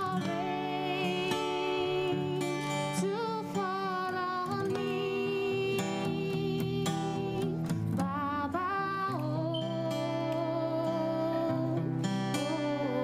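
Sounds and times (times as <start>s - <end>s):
acoustic guitar: 0.0s - 13.0s
woman singing muffled: 0.0s - 13.0s.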